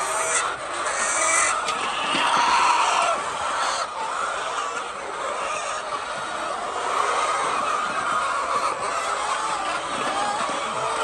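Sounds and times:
hens clucking: 0.0 - 11.0.

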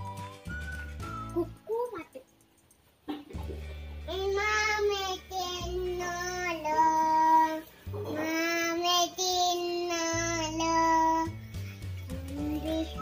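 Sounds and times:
low musical accompaniment: 0.0 - 13.0
child singing: 4.1 - 11.4, 12.1 - 13.0.

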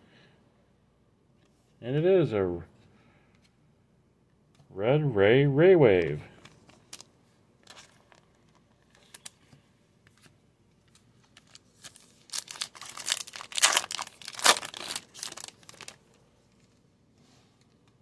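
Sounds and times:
rustling of plastic and cards: 6.0 - 16.9
plastic wrapper torn and crinkled: 6.4 - 9.4, 10.9 - 16.6.

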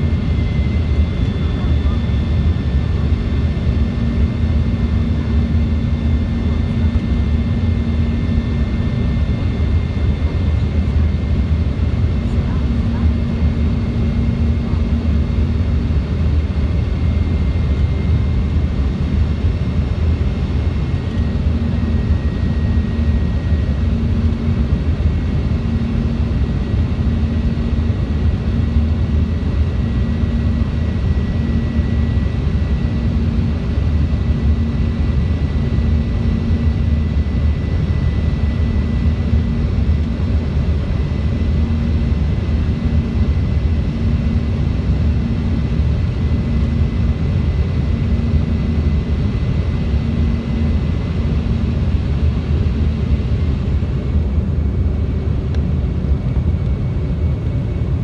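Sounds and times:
airliner cabin engine rumble: 0.0 - 58.0.

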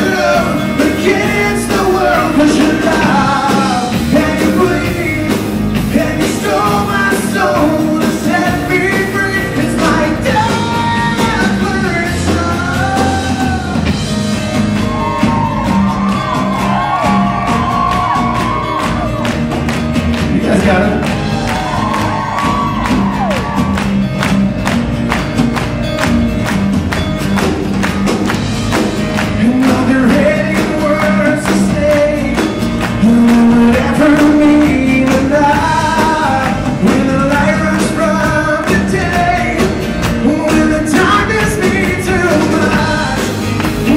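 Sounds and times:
man singing: 0.0 - 14.0, 20.3 - 21.1, 29.2 - 43.9
live rock band playing: 0.0 - 43.9.

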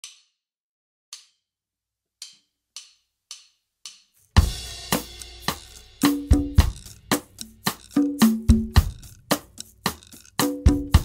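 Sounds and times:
drum kit: 3.9 - 11.0
steelband percussion: 3.9 - 11.0.

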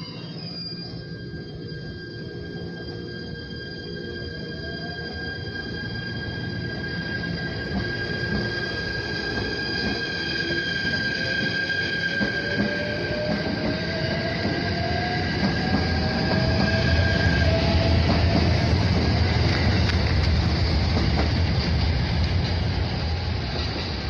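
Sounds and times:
steady high tone: 0.0 - 19.8
train wheels rumbling on rail: 6.0 - 24.0.

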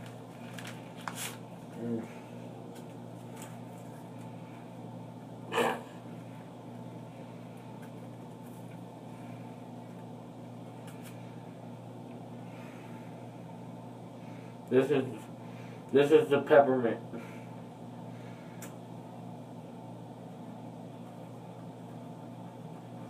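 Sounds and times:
low room hum: 0.0 - 23.0.

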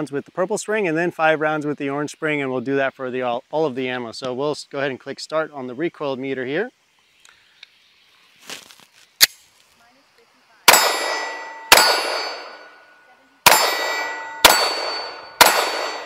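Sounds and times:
pistol shots with ringing tail: 10.7 - 16.0.

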